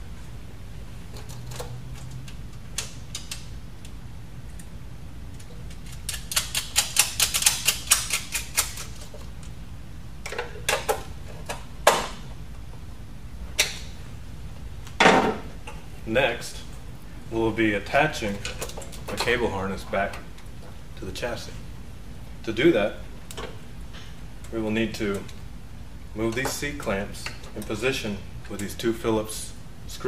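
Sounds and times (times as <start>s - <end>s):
ratcheting hand tool clicking: 5.7s - 9.0s.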